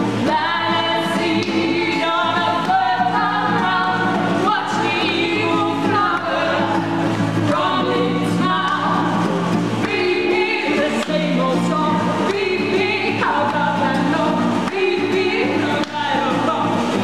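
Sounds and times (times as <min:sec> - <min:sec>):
strummed acoustic guitar: 0:00.0 - 0:17.0
women singing together: 0:00.0 - 0:17.0.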